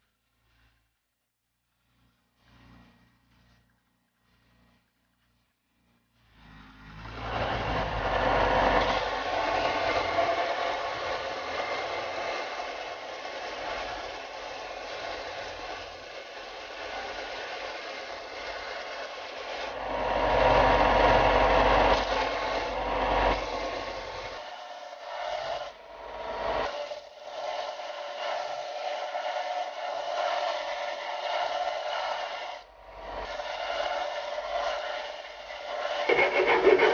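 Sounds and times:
machine hum: 0:06.4 - 0:28.3, 0:28.9 - 0:36.9
belt grinder sanding wood: 0:07.7 - 0:36.9.

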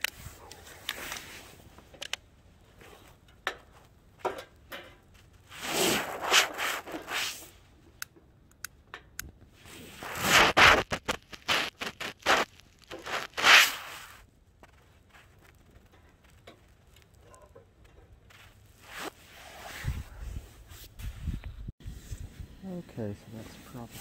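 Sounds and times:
scraping and rustling: 0:02.7 - 0:07.7, 0:09.6 - 0:22.4.

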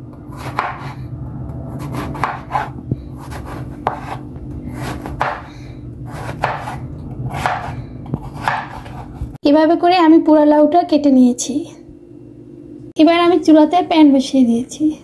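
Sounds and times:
steady low hum: 0:00.0 - 0:15.0
knife slicing gourd on board: 0:00.3 - 0:01.0, 0:01.8 - 0:05.5, 0:06.1 - 0:09.3.

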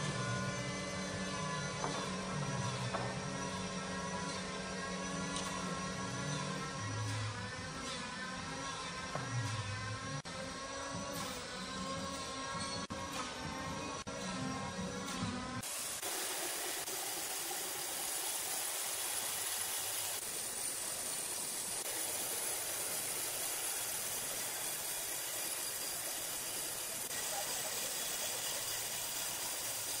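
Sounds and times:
steady hissing noise: 0:15.6 - 0:30.0.

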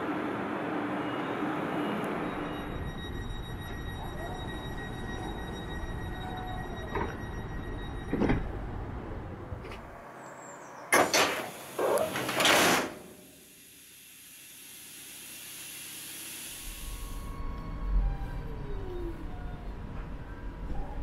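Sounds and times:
train door clunking shut: 0:06.9 - 0:07.3, 0:08.0 - 0:08.6, 0:10.9 - 0:13.2
air hiss: 0:11.3 - 0:17.3.

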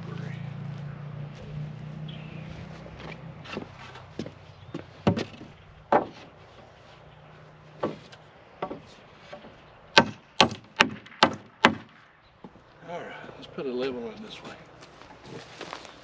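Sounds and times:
hammer nailing wood: 0:05.0 - 0:06.3, 0:07.8 - 0:12.0.

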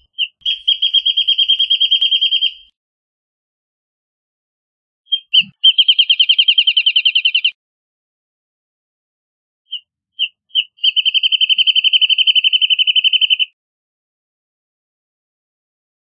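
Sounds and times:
wrentit singing: 0:05.1 - 0:07.6.

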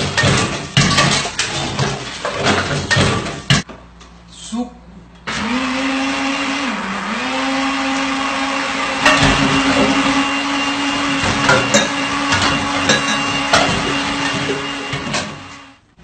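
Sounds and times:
blender motor running: 0:05.3 - 0:15.8.

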